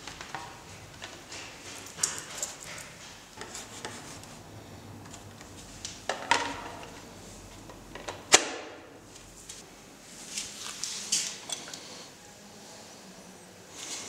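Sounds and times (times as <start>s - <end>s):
light rubbing and handling: 0.2s - 7.8s.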